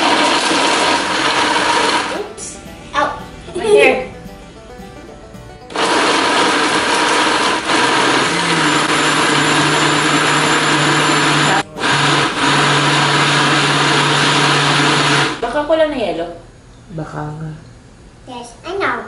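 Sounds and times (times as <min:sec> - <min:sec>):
blender running: 0:00.0 - 0:02.3, 0:05.7 - 0:15.5.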